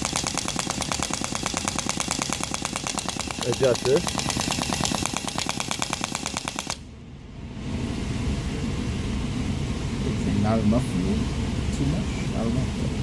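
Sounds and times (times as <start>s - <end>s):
small nitro engine rattling: 0.0s - 6.8s.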